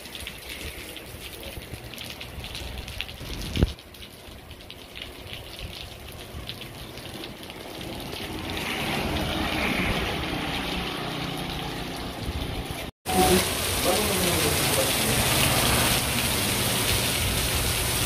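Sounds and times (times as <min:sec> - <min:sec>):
rain on pavement: 0:00.0 - 0:18.0
tyres hissing on wet road: 0:08.2 - 0:11.8, 0:13.1 - 0:18.0.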